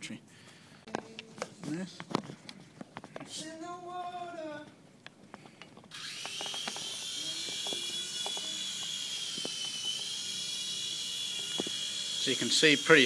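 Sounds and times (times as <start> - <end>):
rc helicopter motor whine: 5.9 - 13.0.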